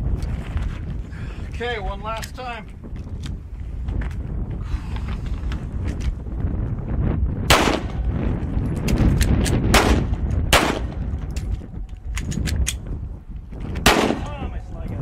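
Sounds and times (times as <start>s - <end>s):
handgun shots: 7.5s - 8.1s, 9.2s - 11.6s, 13.8s - 14.5s
metallic clicks of magazine reload: 11.3s - 12.9s.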